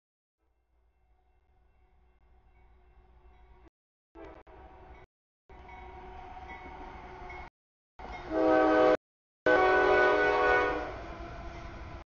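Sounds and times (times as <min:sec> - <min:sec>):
locomotive horn blasts: 0:08.2 - 0:11.0.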